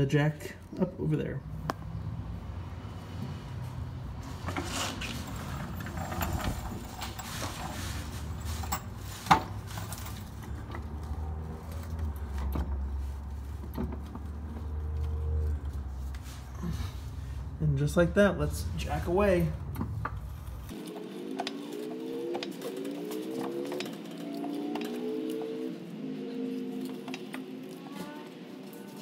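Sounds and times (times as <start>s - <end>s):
floor jack rolling on concrete: 4.2s - 11.1s
metal rattles and clicks: 4.5s - 11.0s.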